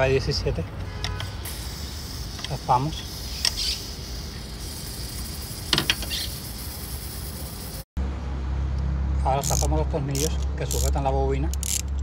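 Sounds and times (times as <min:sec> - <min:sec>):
metallic wrench clicks: 0:09.4 - 0:12.0.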